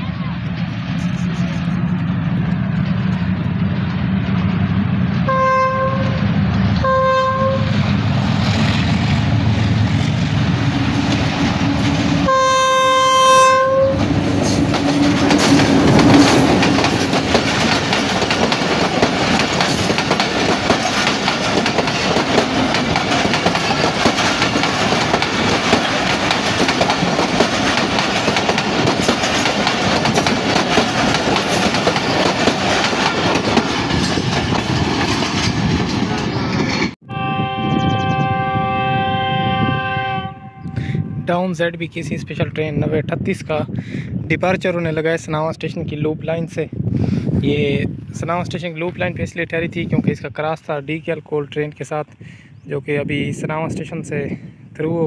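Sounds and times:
diesel locomotive engines running: 0.0 - 43.8
locomotive horn blasts: 5.3 - 7.8, 11.7 - 14.2, 37.0 - 41.3
train wheels clattering over rails: 14.0 - 37.0.

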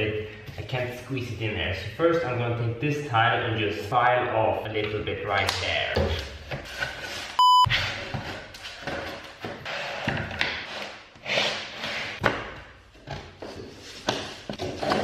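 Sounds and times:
test-tone beep: 7.4 - 7.7.

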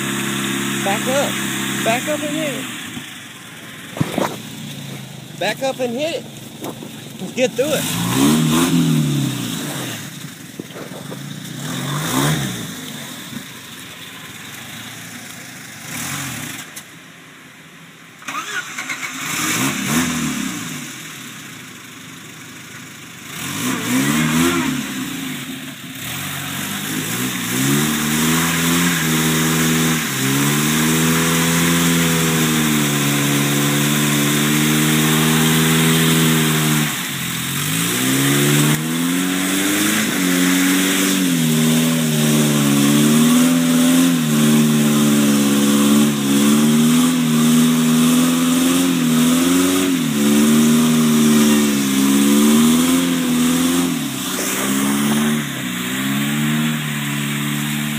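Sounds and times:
tyres churning through mud: 0.0 - 16.8, 18.2 - 21.2, 23.3 - 57.9
engine revving: 0.0 - 16.9, 18.2 - 21.7, 23.2 - 57.9.

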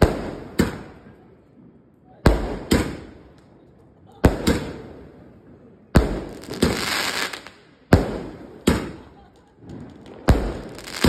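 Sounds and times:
firework bangs: 0.0 - 1.2, 2.2 - 3.5, 4.2 - 11.0
firework crackling: 4.2 - 11.0.

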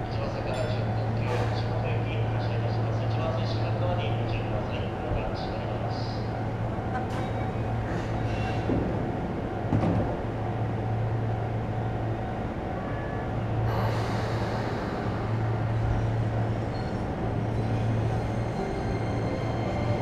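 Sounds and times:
electric train hum: 0.0 - 20.0
train hiss: 13.7 - 15.6.

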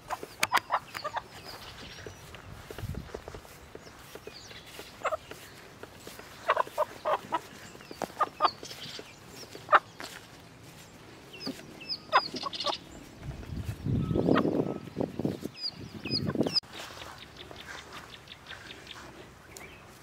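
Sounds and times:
chicken squawking and clucking: 0.0 - 1.8, 4.7 - 5.4, 6.1 - 9.9, 11.9 - 12.9.

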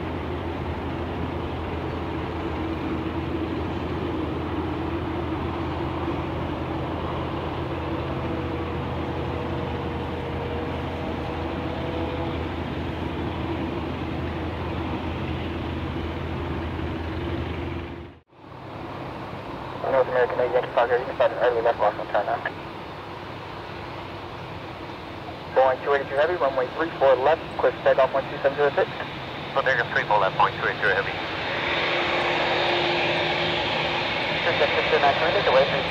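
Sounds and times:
faint engine whine: 0.0 - 35.9
jet engines idling: 0.0 - 35.9.

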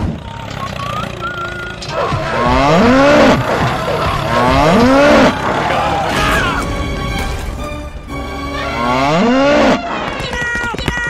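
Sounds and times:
cow mooing: 1.9 - 6.3, 8.6 - 9.8.

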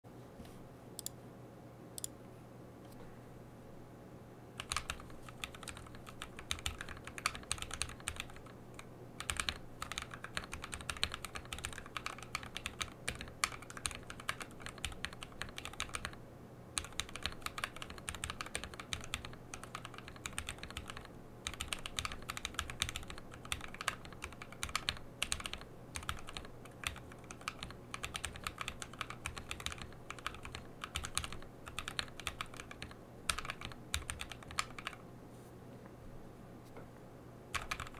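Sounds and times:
mechanical keyboard typing: 4.6 - 16.2, 16.8 - 35.0, 37.5 - 37.9.

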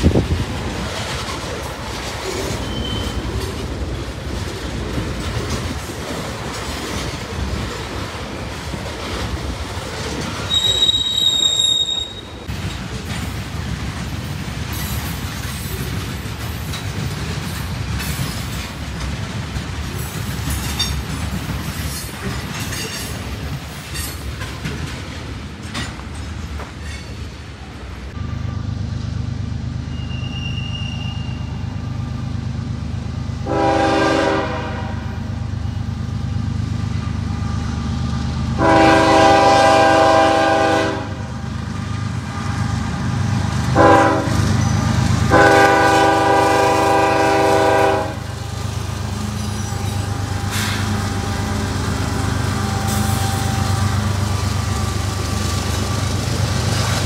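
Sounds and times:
train wheels clattering on rails: 0.0 - 28.2, 33.4 - 57.0
high-pitched wheel squeal: 2.5 - 3.3, 10.4 - 12.5, 29.8 - 32.0, 49.2 - 50.9.

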